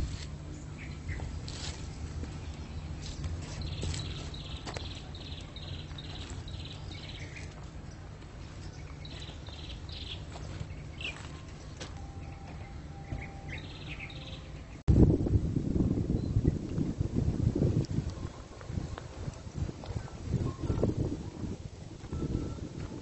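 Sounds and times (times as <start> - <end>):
birds chirping: 0.0 - 14.8
low steady hum: 0.0 - 23.0.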